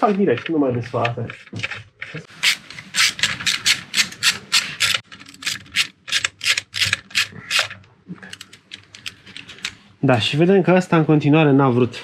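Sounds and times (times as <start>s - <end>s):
hand tool rasping strokes: 2.2s - 5.0s.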